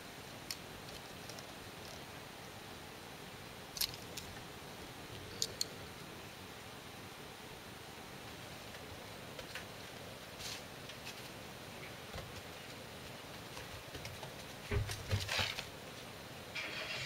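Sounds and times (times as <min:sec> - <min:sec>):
paws tapping: 0:12.1 - 0:15.5
thumps and rustles: 0:12.1 - 0:15.7.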